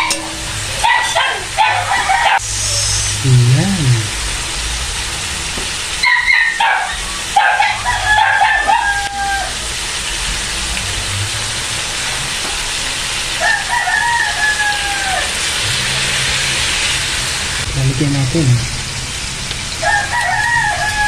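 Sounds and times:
food frying in oil: 0:00.0 - 0:21.0
rooster crowing: 0:00.8 - 0:02.4, 0:06.0 - 0:09.8, 0:13.3 - 0:16.6, 0:19.8 - 0:21.0.

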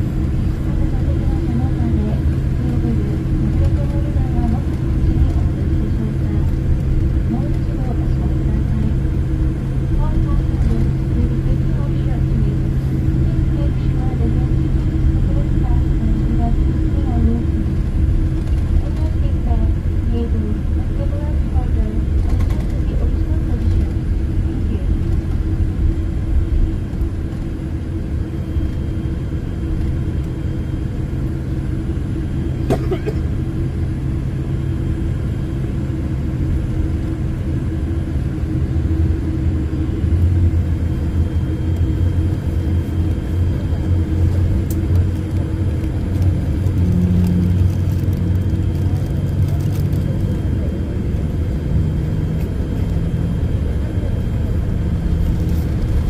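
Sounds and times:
aircraft cabin rumble: 0:00.0 - 0:56.0.

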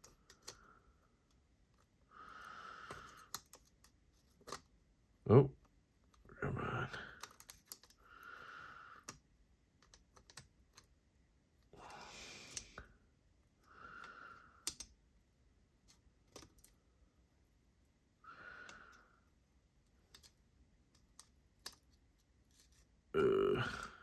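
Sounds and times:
person breathing: 0:02.0 - 0:03.6, 0:06.9 - 0:09.2, 0:11.7 - 0:14.9, 0:18.2 - 0:19.4, 0:23.2 - 0:24.0
small metal parts clicking: 0:02.9 - 0:04.7, 0:07.2 - 0:08.0, 0:14.6 - 0:15.0, 0:16.2 - 0:16.8, 0:20.0 - 0:22.8.

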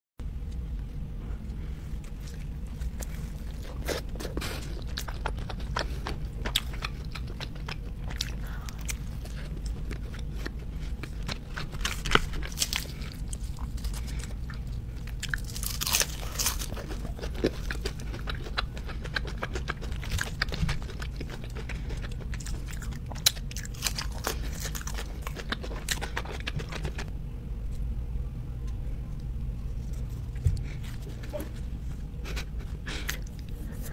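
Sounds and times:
steady low hum: 0:00.2 - 0:33.9
person crunching crispy food: 0:01.9 - 0:27.1.

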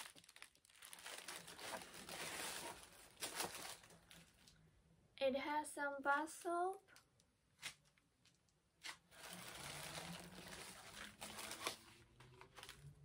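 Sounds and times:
packaging rustling: 0:00.0 - 0:04.6, 0:07.6 - 0:13.0.

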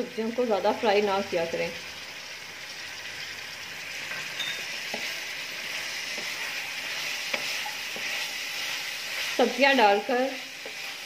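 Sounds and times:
food sizzling in hot oil: 0:00.0 - 0:11.0
wooden spatula tapping and scraping: 0:04.1 - 0:11.0.

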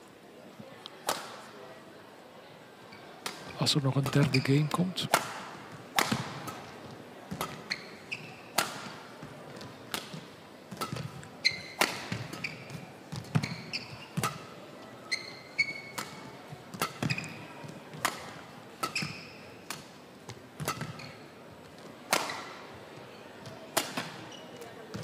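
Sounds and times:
rackets smacking shuttlecock: 0:01.0 - 0:01.4, 0:05.1 - 0:14.6, 0:15.2 - 0:21.2, 0:22.0 - 0:22.6, 0:23.7 - 0:24.3
shoes squeaking on floor: 0:02.9 - 0:04.7, 0:07.3 - 0:08.7, 0:10.8 - 0:17.8, 0:18.8 - 0:19.6, 0:20.6 - 0:21.4, 0:22.2 - 0:25.0.

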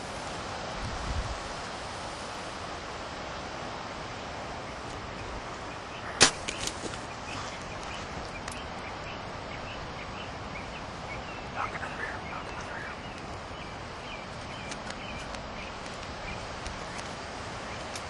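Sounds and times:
outdoor background hiss: 0:00.0 - 0:18.0
faint bird chirps: 0:04.6 - 0:17.0
soft clicks: 0:14.6 - 0:17.1.

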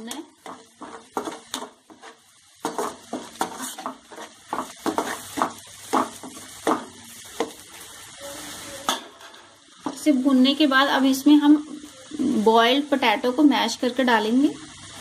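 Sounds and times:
spatula stirring and scraping pan: 0:00.0 - 0:10.2
oil sizzling: 0:00.0 - 0:15.0.

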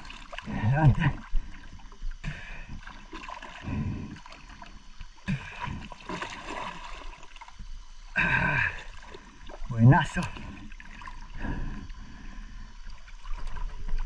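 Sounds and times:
water sloshing and splashing: 0:00.0 - 0:14.0.

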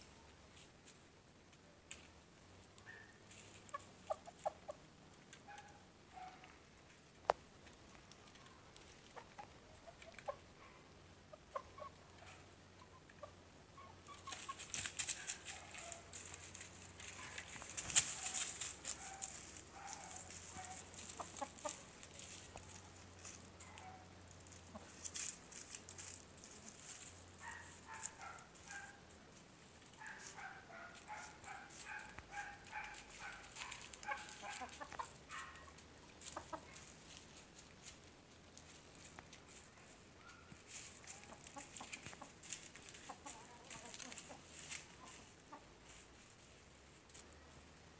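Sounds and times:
hen clucking softly: 0:03.4 - 0:06.3, 0:08.4 - 0:15.3, 0:19.8 - 0:25.0
scratching in dry leaf litter: 0:14.1 - 0:23.9, 0:24.7 - 0:28.9, 0:30.0 - 0:35.5, 0:40.6 - 0:46.6.

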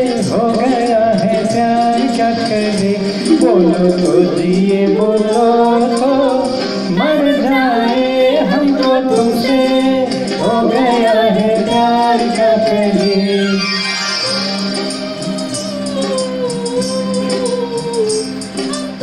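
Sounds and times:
karaoke backing track: 0:00.0 - 0:19.0
person singing: 0:03.2 - 0:13.6, 0:14.2 - 0:19.0.

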